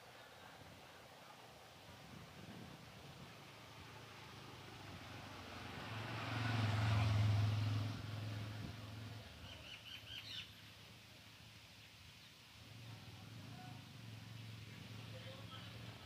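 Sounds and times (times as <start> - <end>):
low engine hum: 2.0 - 9.5
bird chirping: 9.4 - 10.7.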